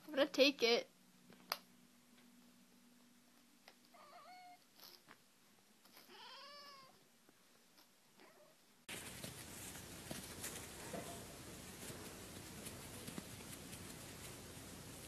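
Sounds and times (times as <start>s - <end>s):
cat meowing: 3.9s - 4.6s, 6.0s - 7.0s.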